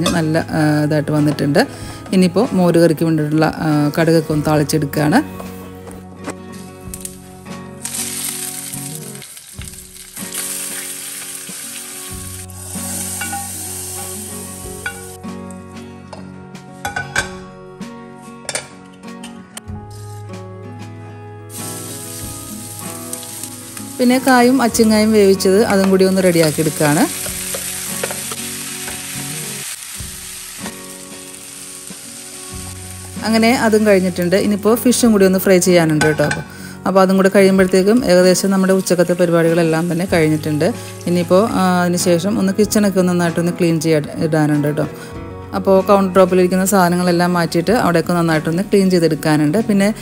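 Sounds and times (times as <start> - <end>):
spices sizzling in hot oil: 6.8 - 15.2, 21.5 - 36.0, 37.2 - 42.5
spatula scraping and tapping pan: 27.2 - 29.0.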